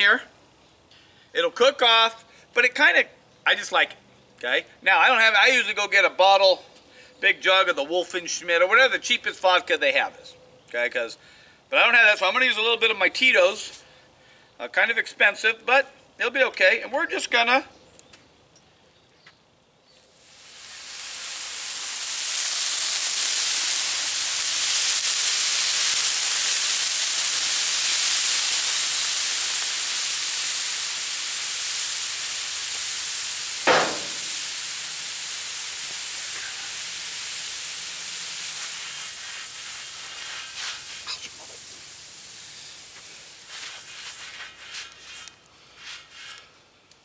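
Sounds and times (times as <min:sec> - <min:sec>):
liquid sizzling on hot pan: 0:20.0 - 0:46.5.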